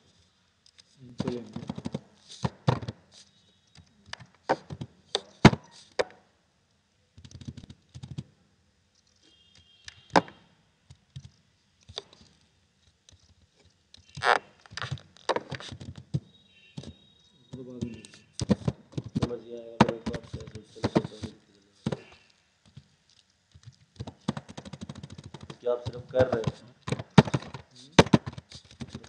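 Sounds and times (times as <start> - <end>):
computer keyboard keys clacking: 7.2 - 8.3, 23.5 - 27.5.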